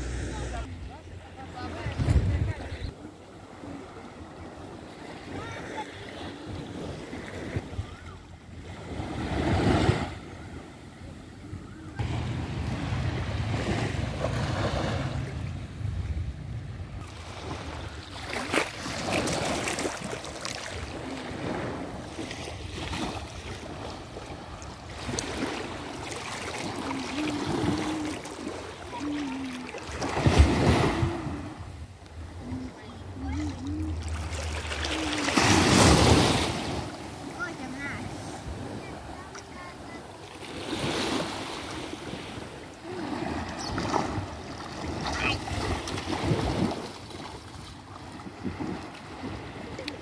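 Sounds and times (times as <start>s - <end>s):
small waves lapping at shoreline: 0.0s - 50.0s
wind buffeting microphone: 1.8s - 2.9s.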